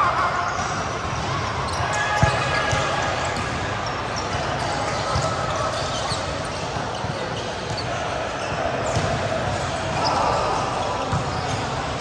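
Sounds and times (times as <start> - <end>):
court noise: 0.0 - 12.0
players' voices: 0.0 - 12.0
volleyball hits: 8.8 - 10.1.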